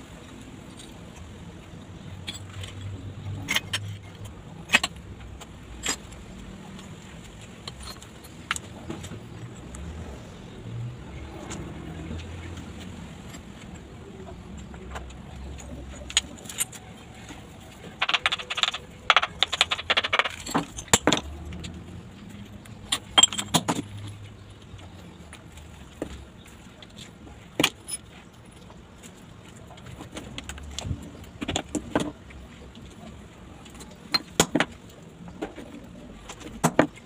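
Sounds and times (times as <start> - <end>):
ceramic tile pieces clinking: 17.8 - 21.8, 22.8 - 24.3.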